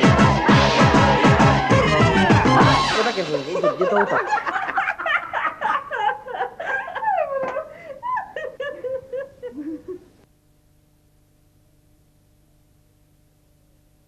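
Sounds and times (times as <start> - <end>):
people laughing and giggling: 0.0 - 10.2
faint steady hum: 3.6 - 14.0.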